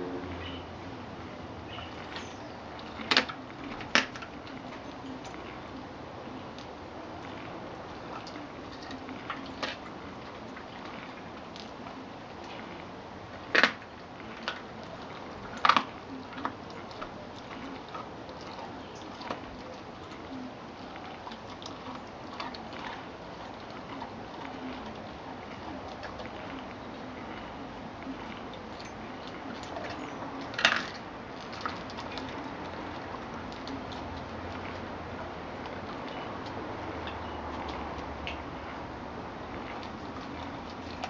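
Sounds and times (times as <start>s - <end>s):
dog crunching meat and bone: 1.1s - 41.0s.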